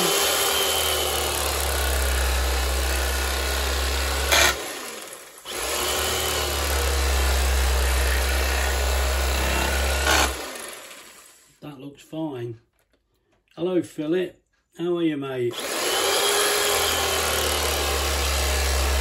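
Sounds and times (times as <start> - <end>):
electric carving knife buzzing: 0.0 - 11.4, 15.5 - 19.0.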